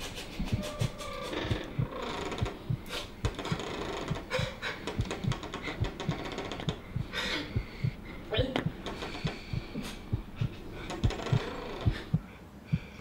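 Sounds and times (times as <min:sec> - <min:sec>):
low thumping beat: 0:00.0 - 0:13.0
man crying and gasping: 0:04.2 - 0:06.0, 0:07.0 - 0:08.6.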